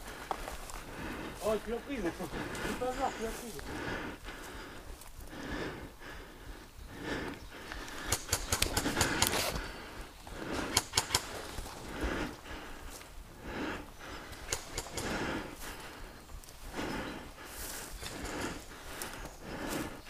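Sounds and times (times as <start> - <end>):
footsteps through dry grass: 0.0 - 5.8, 6.6 - 20.0
sharp clicks and snaps: 7.8 - 9.5, 10.7 - 11.3, 14.3 - 15.2.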